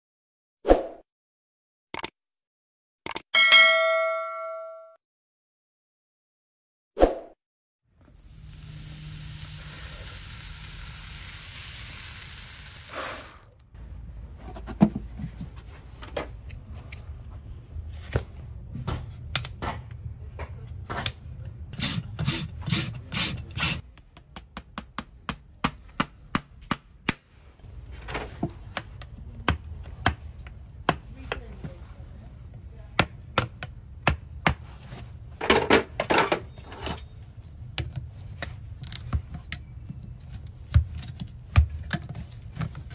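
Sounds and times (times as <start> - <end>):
hot horseshoe sizzling: 8.0 - 13.6.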